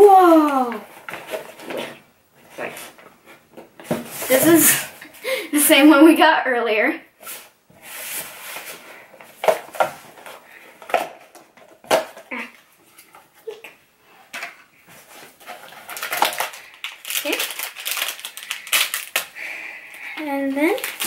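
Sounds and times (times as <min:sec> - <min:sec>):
cardboard rustling: 0:00.7 - 0:05.0, 0:14.4 - 0:19.2.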